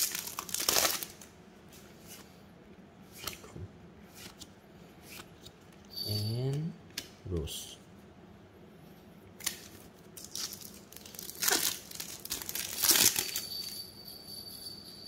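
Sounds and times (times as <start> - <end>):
wrappers tearing and crinkling: 0.0 - 1.3, 9.4 - 13.5.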